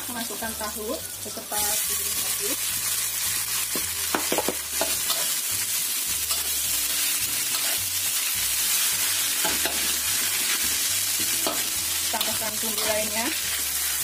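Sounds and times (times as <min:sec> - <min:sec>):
food sizzling in hot oil: 0:00.0 - 0:14.0
metal spatula scraping a wok: 0:04.7 - 0:14.0.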